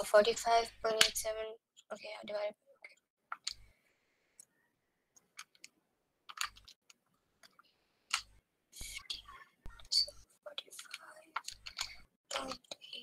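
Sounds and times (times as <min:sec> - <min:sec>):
faint clicks and taps: 0:05.1 - 0:13.0.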